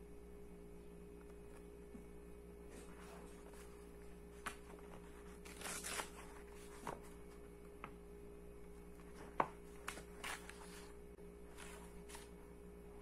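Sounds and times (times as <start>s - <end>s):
faint steady hum: 0.0s - 13.0s
book pages flipping: 2.7s - 8.0s, 8.7s - 12.5s.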